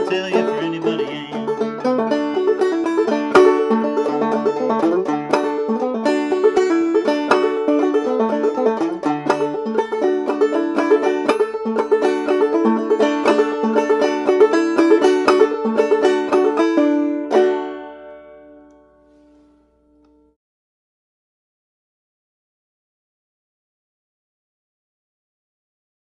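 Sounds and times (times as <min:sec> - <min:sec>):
banjo plucked and brushed notes: 0:00.0 - 0:20.3.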